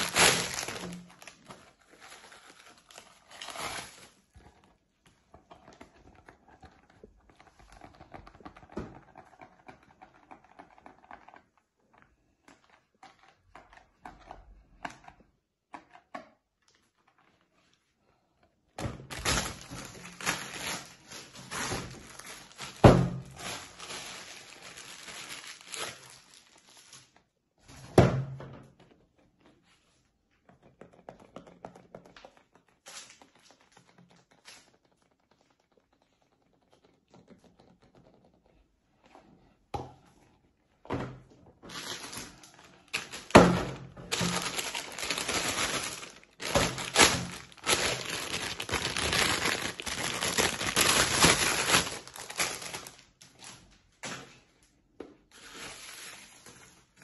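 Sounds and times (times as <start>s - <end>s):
plastic bags crinkling: 0.0s - 4.4s, 19.0s - 27.2s, 41.6s - 53.8s.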